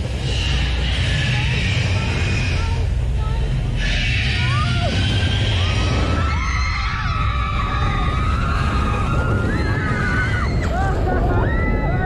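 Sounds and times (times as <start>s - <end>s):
people screaming: 3.8s - 12.0s.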